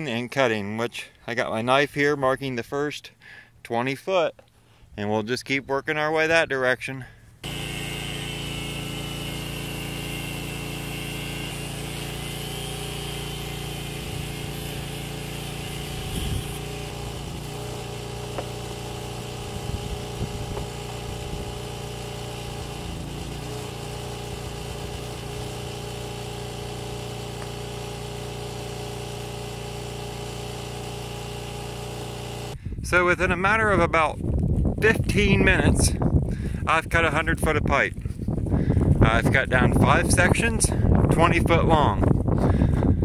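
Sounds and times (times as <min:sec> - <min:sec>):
generator engine running: 0:07.4 - 0:32.6.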